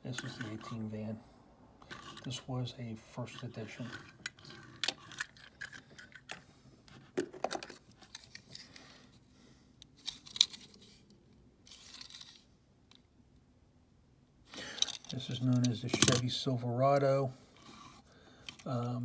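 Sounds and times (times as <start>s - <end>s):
toy cars clicking and knocking: 3.7s - 6.4s, 14.6s - 16.2s, 18.4s - 18.8s.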